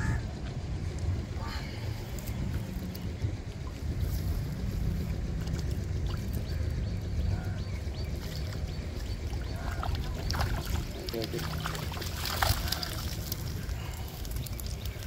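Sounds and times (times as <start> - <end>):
low rumble: 0.0 - 15.0
water trickling and sloshing: 2.0 - 15.0
fish splashing in net: 9.7 - 15.0.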